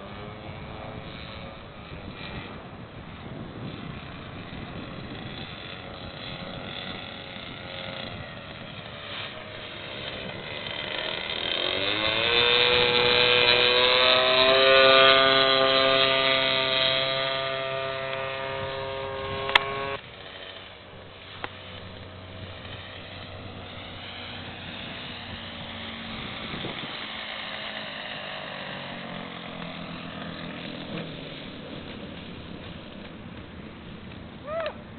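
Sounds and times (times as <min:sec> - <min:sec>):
model plane engine droning: 0:00.0 - 0:34.9.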